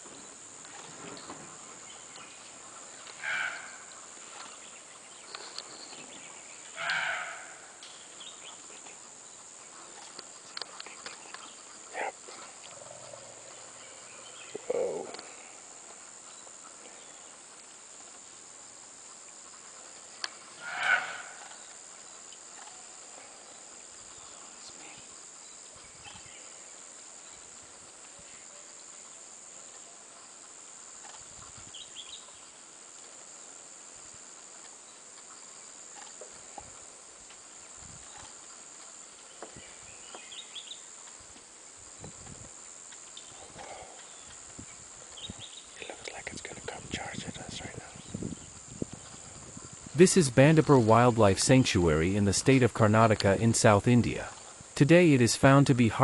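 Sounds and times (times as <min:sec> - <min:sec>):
high insect drone: 0:00.0 - 0:56.0
animal calls: 0:03.0 - 0:04.0, 0:06.7 - 0:07.8, 0:11.8 - 0:15.7, 0:20.5 - 0:21.6.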